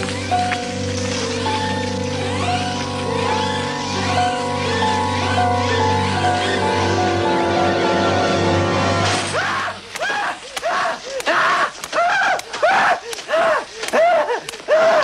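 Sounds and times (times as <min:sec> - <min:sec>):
sustained music: 0:00.0 - 0:09.4
man shrieking: 0:09.3 - 0:15.0
sharp slaps: 0:09.9 - 0:14.7.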